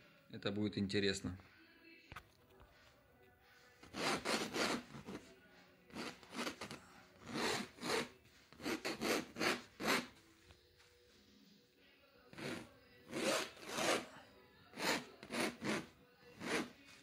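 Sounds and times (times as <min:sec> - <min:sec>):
pencil sketching on canvas: 0:03.8 - 0:05.3, 0:05.9 - 0:10.2, 0:12.4 - 0:14.1, 0:14.7 - 0:17.0.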